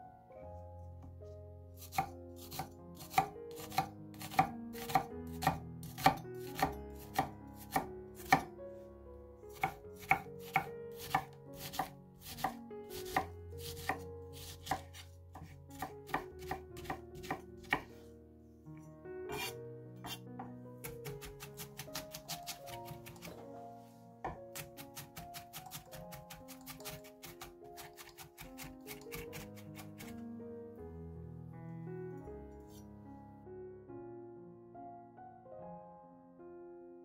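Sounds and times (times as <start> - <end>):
soft background music: 0.0 - 37.0
knife chopping onion on wood: 1.8 - 8.5, 9.5 - 17.9, 19.3 - 23.4, 24.2 - 30.2.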